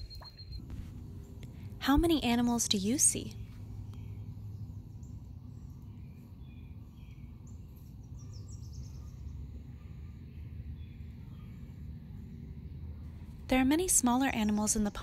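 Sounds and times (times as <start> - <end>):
faint bird chirps: 0.0 - 0.7, 3.3 - 12.4
low steady rumble: 0.0 - 15.0.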